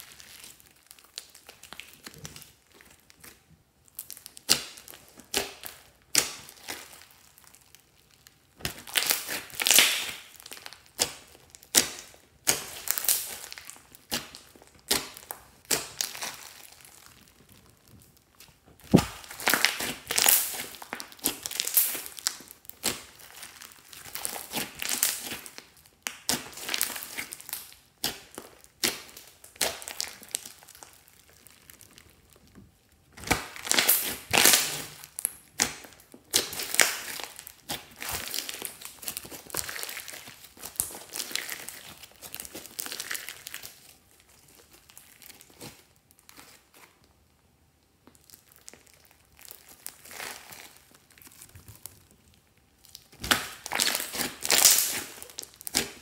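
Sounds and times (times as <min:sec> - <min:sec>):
hands squishing foamy slime: 0:00.0 - 0:46.9, 0:48.1 - 0:56.0
trapped air popping and crackling: 0:17.0 - 0:23.0.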